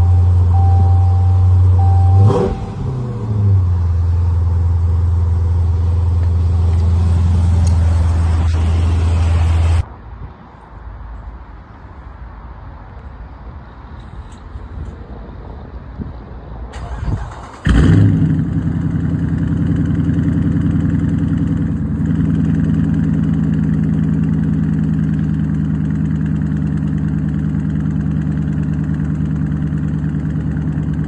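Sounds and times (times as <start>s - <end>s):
door chime beeping: 0.0s - 2.7s
car engine idling and revving: 0.0s - 9.9s, 16.8s - 31.0s.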